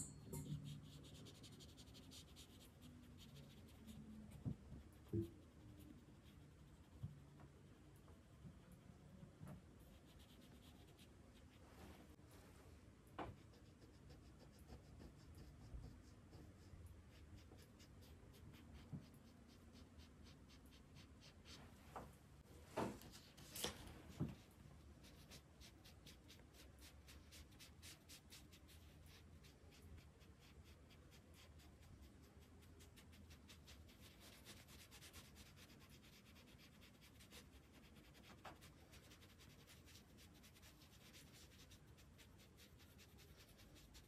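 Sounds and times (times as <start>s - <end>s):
drawing tool strokes on paper: 23.1s - 44.0s.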